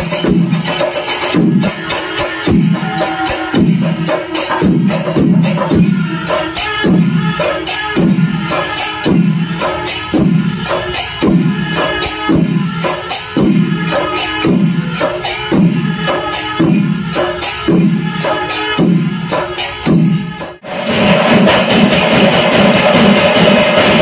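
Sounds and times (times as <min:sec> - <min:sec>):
cymbal clashes: 0:00.0 - 0:24.0
deep drum strokes: 0:19.9 - 0:24.0.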